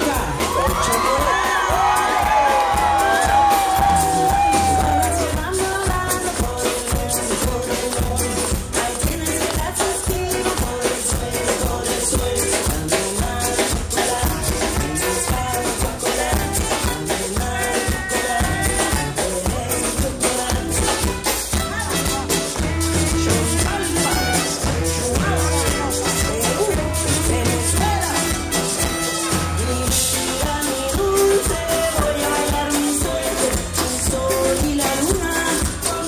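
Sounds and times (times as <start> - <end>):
live latin band playing: 0.0 - 36.0
person singing: 0.0 - 36.0.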